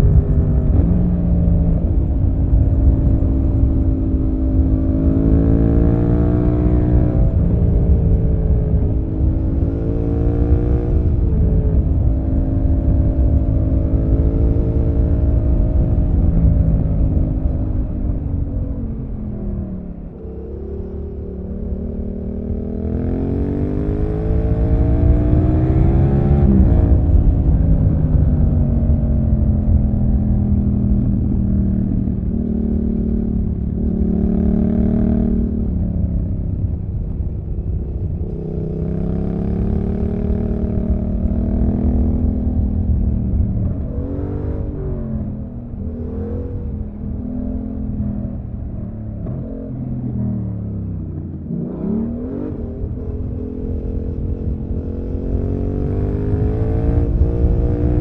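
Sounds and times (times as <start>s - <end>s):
motorcycle engine revving: 0.0s - 58.0s
wind and road noise: 0.0s - 58.0s.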